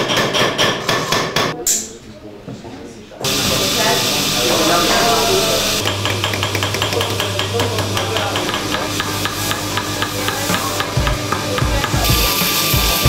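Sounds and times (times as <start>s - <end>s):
hammers tapping on steel: 0.0s - 1.6s, 5.8s - 13.0s
grinding wheel hissing: 3.2s - 13.0s.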